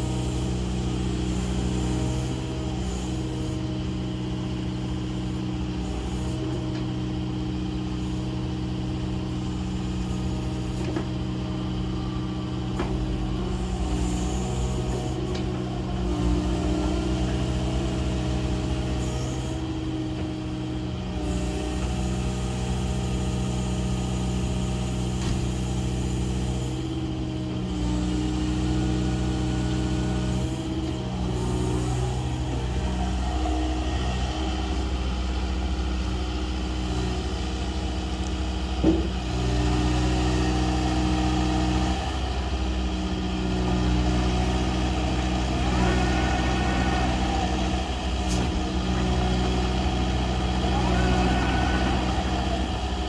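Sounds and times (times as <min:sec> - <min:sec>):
excavator diesel engine running: 0:00.0 - 0:53.0
hydraulic boom moving: 0:44.1 - 0:50.9.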